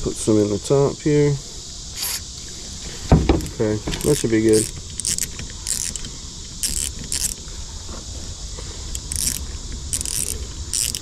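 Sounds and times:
fishing reel whirring: 2.0s - 2.2s, 3.4s - 7.5s, 8.8s - 11.0s.

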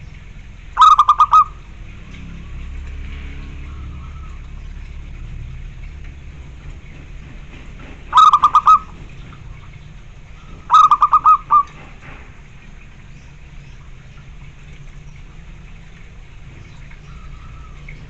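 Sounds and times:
dove cooing: 0.8s - 1.7s, 8.1s - 9.0s, 10.6s - 11.8s.

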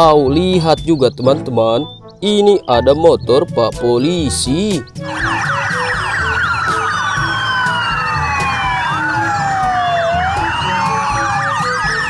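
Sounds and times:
music: 0.0s - 12.0s
police sirens: 5.0s - 12.0s.

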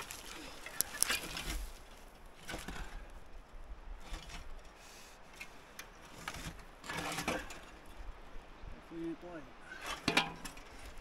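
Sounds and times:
wooden board scraping on dirt: 0.0s - 3.1s, 3.9s - 8.0s.

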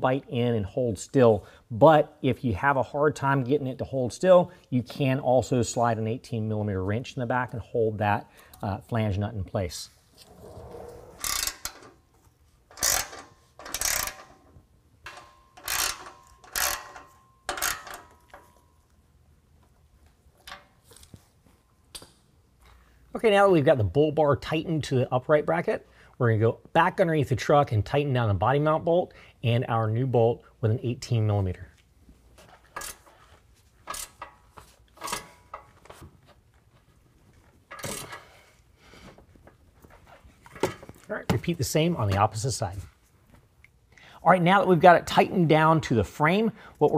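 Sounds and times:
ratchet clicking: 11.2s - 11.9s, 12.7s - 14.4s, 15.1s - 18.1s.

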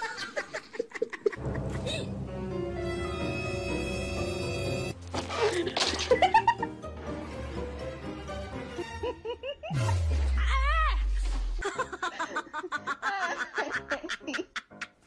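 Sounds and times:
snicker-like sounds: 0.0s - 2.2s, 5.3s - 6.7s, 8.8s - 11.0s, 11.6s - 15.0s
background music: 1.2s - 15.0s.

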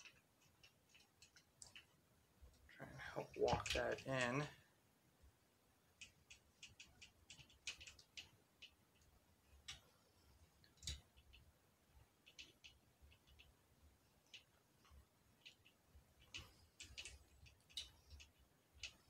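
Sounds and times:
small clicks of metal parts: 0.0s - 4.5s, 6.0s - 10.0s, 10.6s - 11.5s, 14.2s - 19.0s.

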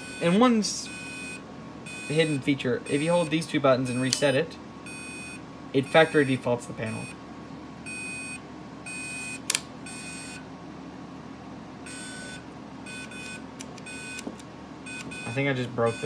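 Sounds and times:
short electronic beeps: 0.0s - 5.4s
sharp click: 9.4s - 9.7s.

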